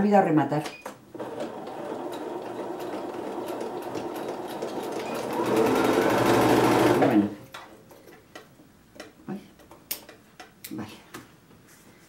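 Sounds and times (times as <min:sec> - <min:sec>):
electric sewing machine stitching: 0:01.1 - 0:07.4.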